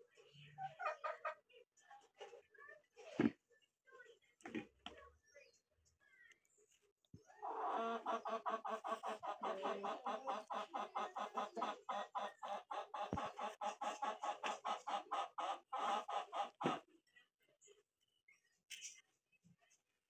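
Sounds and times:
chicken clucking: 0.2 - 1.5, 7.2 - 16.9.

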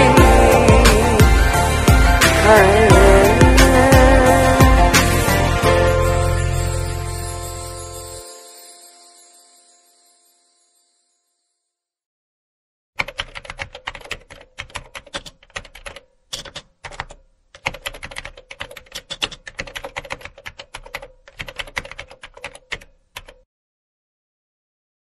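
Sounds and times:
keyboard keystroke clicks: 13.0 - 23.4.

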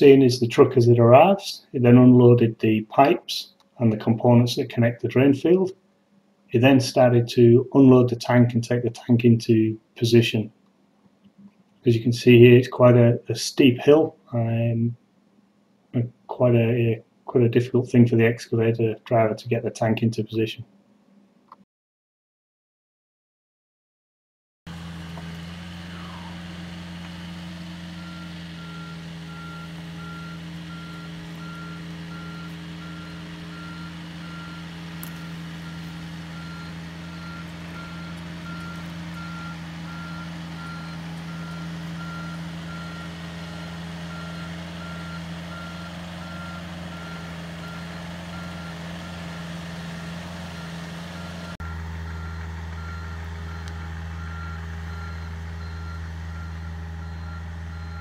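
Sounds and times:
diesel engine running: 24.7 - 58.0
travel alarm beeping: 27.9 - 49.2, 50.6 - 58.0.

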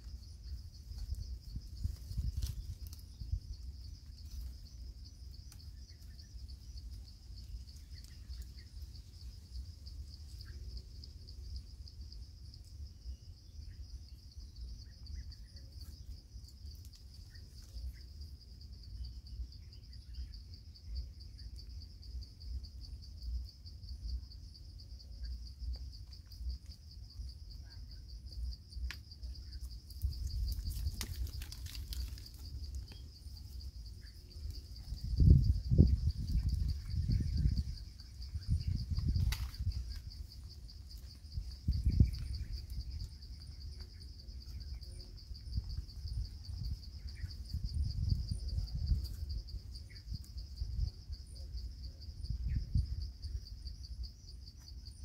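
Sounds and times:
insects trilling: 0.0 - 55.0
faint clicks and rustles: 28.8 - 35.0.

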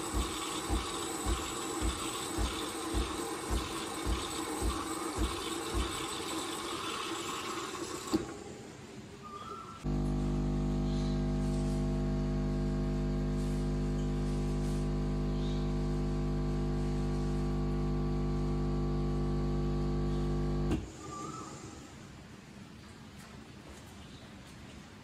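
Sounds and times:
espresso pouring: 0.0 - 8.4, 9.9 - 20.7
coffee machine pump humming: 0.0 - 8.6, 9.5 - 21.4.

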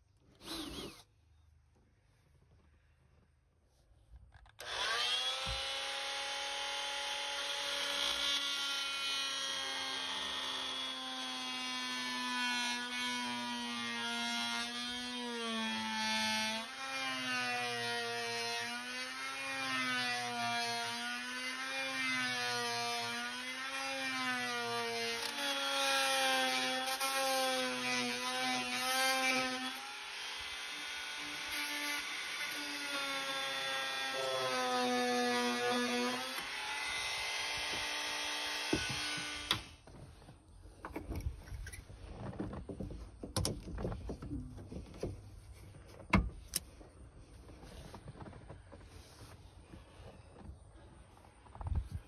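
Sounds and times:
rotary tool motor whine: 0.4 - 1.1, 4.6 - 15.2.

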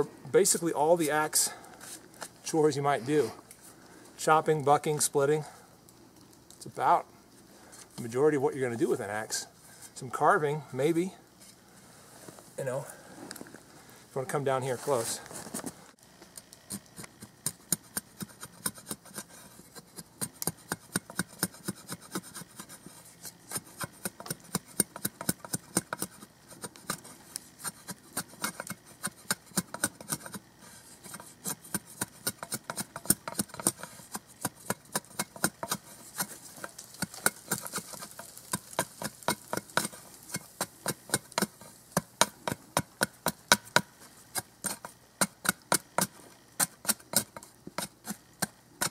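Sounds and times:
shovel edge scraping wooden stick: 16.7 - 48.9.

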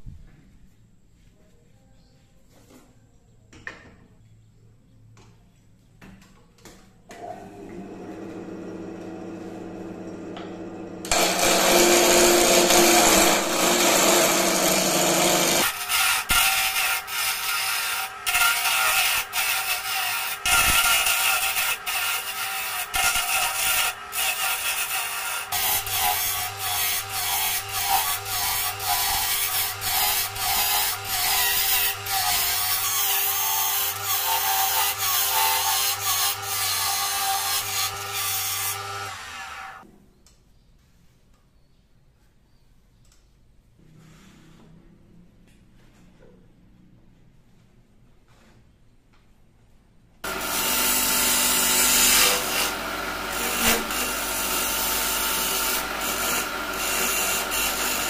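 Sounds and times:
turning tool cutting wood: 10.0 - 39.8, 50.2 - 58.0
lathe motor hum: 50.3 - 51.7, 52.3 - 58.0.

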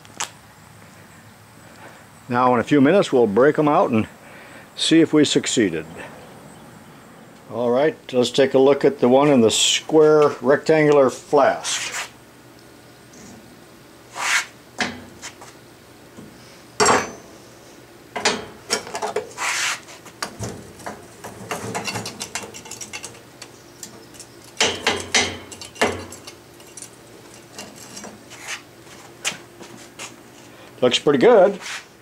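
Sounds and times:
sharp metal clank: 16.8 - 17.3.

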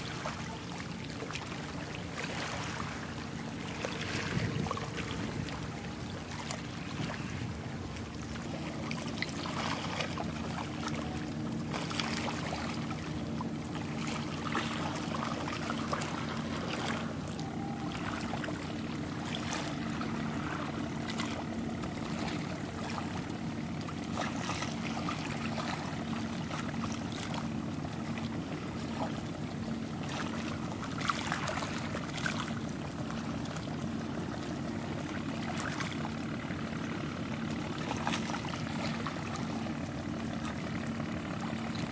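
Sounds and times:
boat engine droning: 0.0 - 41.9
river water splashing: 0.0 - 41.9.

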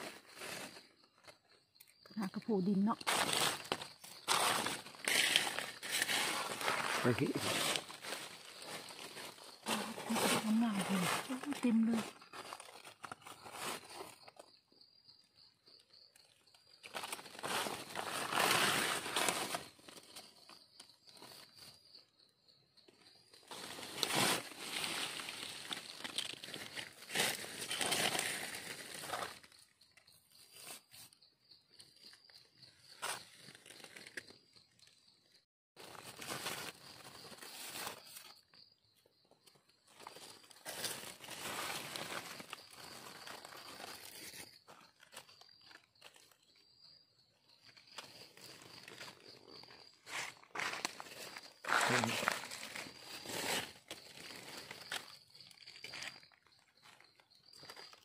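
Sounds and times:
dry leaves crunching and rustling: 3.0 - 14.2, 16.9 - 20.4, 23.5 - 29.6, 35.8 - 38.4, 40.0 - 46.4, 48.0 - 56.2.

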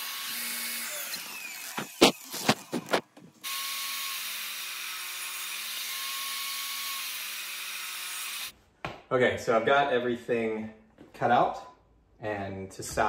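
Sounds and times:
table saw cutting plywood: 0.0 - 8.5.

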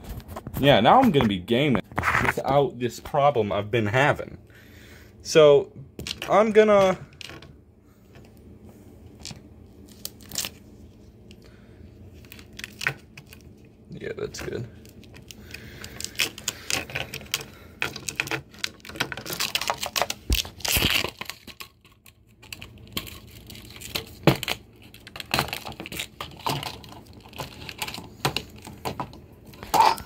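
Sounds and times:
duct tape tearing off roll: 20.2 - 21.4.

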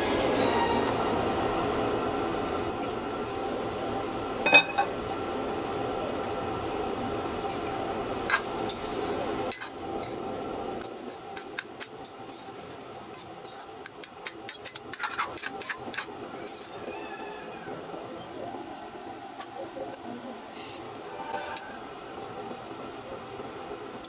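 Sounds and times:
frying hiss: 2.7 - 24.0
metal ladle scraping a wok: 11.1 - 16.7.

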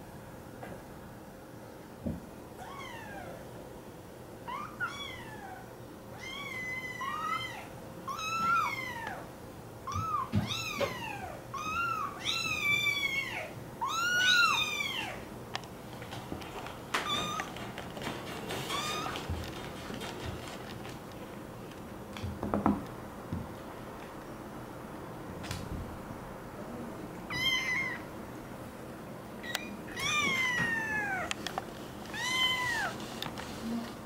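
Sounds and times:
kitten meowing: 9.9 - 15.2, 27.3 - 28.0.

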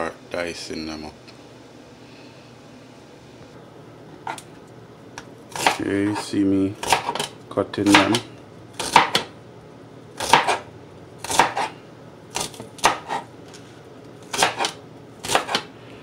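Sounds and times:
knife slicing on cutting board: 11.2 - 11.7, 12.4 - 13.3, 14.3 - 15.7.

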